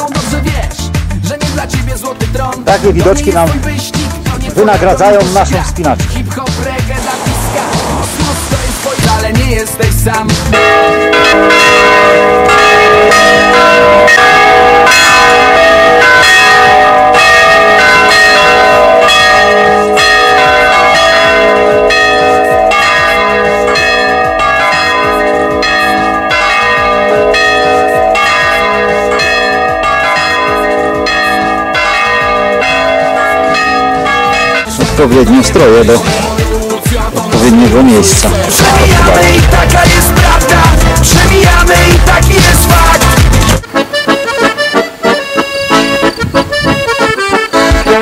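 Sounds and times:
church bells ringing: 10.5 - 35.9.

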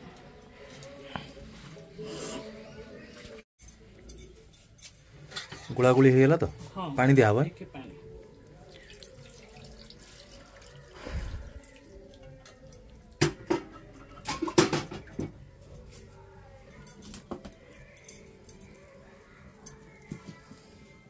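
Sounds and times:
water pouring into pan: 8.7 - 12.2
metallic clanks of pan and mug: 13.2 - 15.4.

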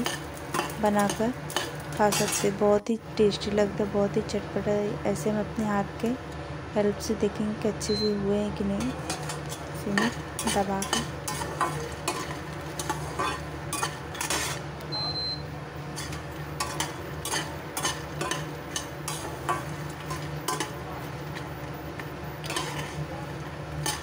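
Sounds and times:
metal spatula scraping pan: 0.0 - 2.6, 8.8 - 14.6, 15.9 - 20.8, 22.4 - 23.1
steady low hum: 0.0 - 24.0.

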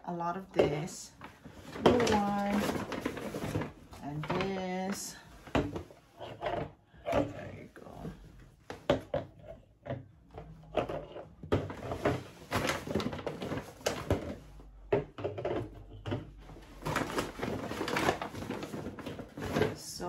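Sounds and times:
rustling: 1.2 - 8.5, 16.4 - 20.0.

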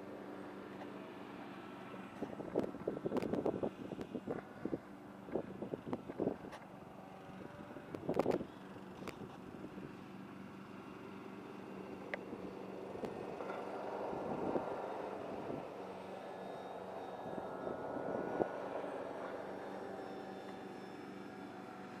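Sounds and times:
model plane motor droning: 0.0 - 22.0.

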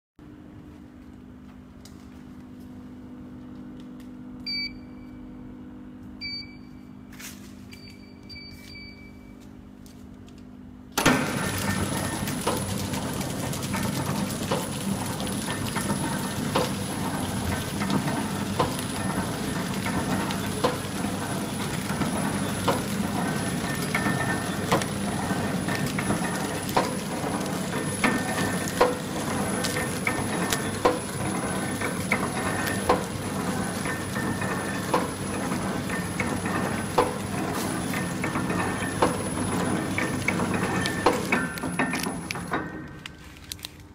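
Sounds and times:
short electronic beeps: 4.5 - 5.3, 6.2 - 7.0, 7.7 - 9.4
packing machine clattering: 11.0 - 43.9.

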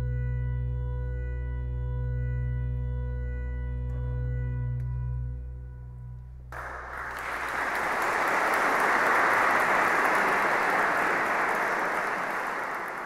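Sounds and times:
pipe organ chord: 0.0 - 13.0
audience applause: 6.6 - 13.0.

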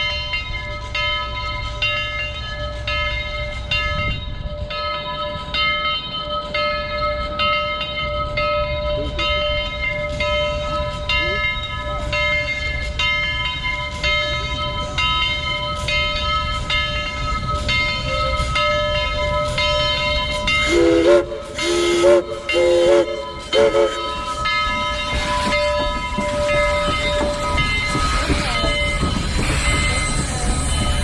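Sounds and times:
locomotive bell ringing: 0.0 - 31.0
rail noise: 0.0 - 31.0
steam hiss: 17.6 - 31.0.

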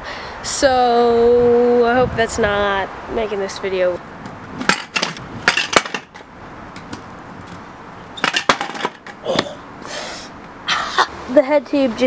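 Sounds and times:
scooter clattering on concrete: 3.6 - 9.7.

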